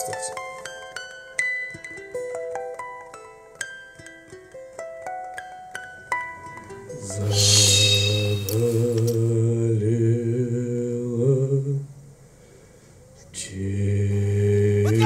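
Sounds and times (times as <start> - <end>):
chant-like drone of voices: 7.0 - 11.5, 13.4 - 15.0.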